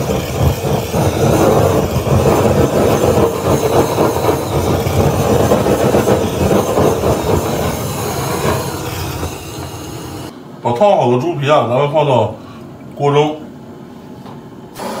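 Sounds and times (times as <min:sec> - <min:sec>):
blowtorch flame rushing: 0:00.0 - 0:10.3, 0:14.8 - 0:15.0.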